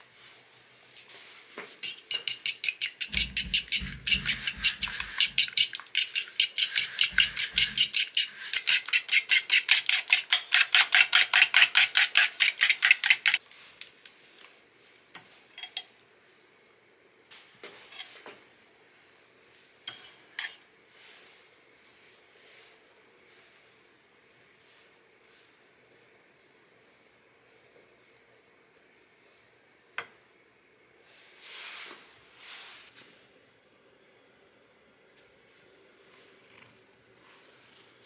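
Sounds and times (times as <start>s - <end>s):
eggs whisked in a bowl: 1.6s - 13.4s.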